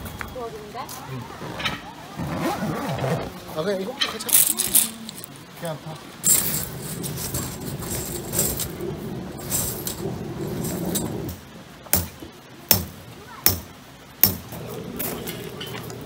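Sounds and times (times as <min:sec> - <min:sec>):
tent fabric rustling: 0:02.2 - 0:03.4, 0:06.2 - 0:11.3.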